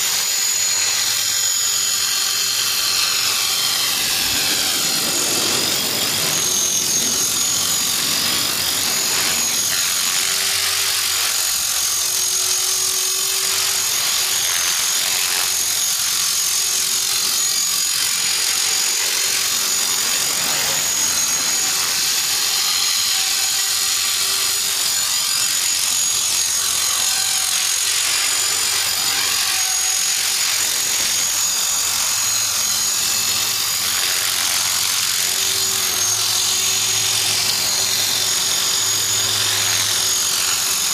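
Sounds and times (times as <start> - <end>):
rc helicopter motor whine: 0.0 - 40.9
rotor blades whirring: 0.0 - 40.9
shaft ticking: 1.4 - 11.9.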